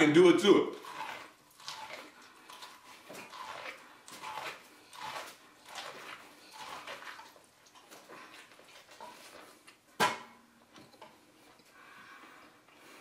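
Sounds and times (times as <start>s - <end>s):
biting and chewing corn: 0.4s - 9.8s.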